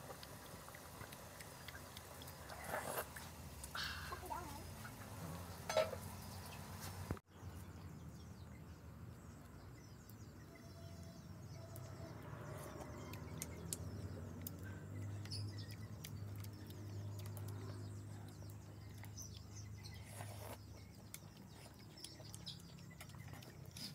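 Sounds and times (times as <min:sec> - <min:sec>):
small ticks: 0:12.8 - 0:23.9.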